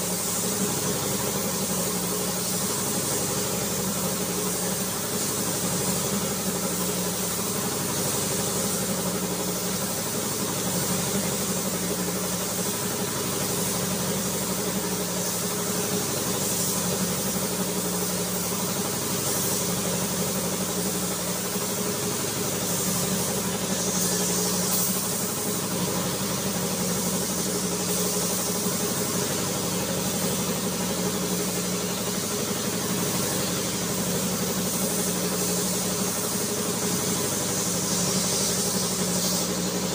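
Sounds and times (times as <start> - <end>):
spray gun hissing: 0.0 - 39.9.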